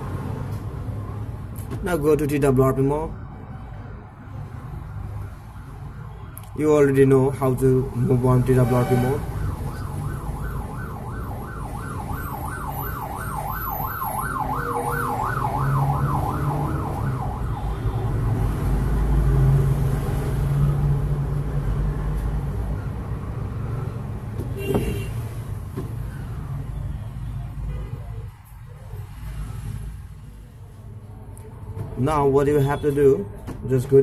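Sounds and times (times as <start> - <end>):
road traffic rumble: 0.0 - 34.0
yelping siren: 8.5 - 18.0.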